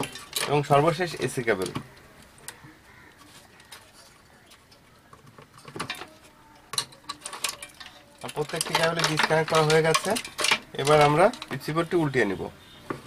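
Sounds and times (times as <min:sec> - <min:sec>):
loose wires handled: 0:00.0 - 0:13.0
plugs clicking and rattling: 0:04.6 - 0:11.7.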